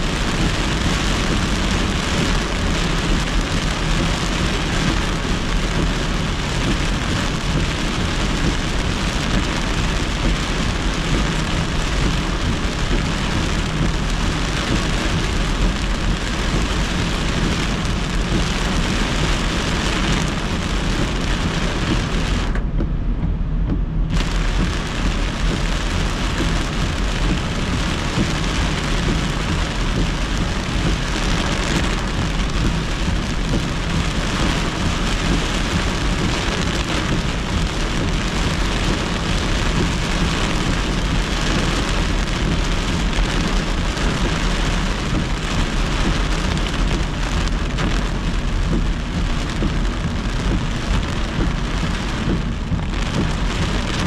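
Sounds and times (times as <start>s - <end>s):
car rumbling on wet road: 0.0s - 54.0s
heavy rain hitting car: 0.0s - 54.0s.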